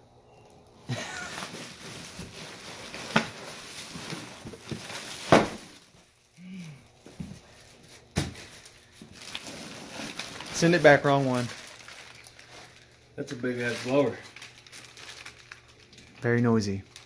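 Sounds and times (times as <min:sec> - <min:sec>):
plastic packaging crinkling: 0:00.4 - 0:17.0
sharp crackles: 0:08.6 - 0:17.0.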